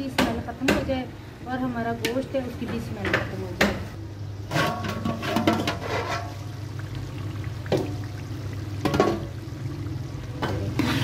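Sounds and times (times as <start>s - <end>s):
meat frying: 3.3s - 11.0s
water poured into pot: 4.5s - 11.0s
metal ladle knocking pot: 8.8s - 9.3s.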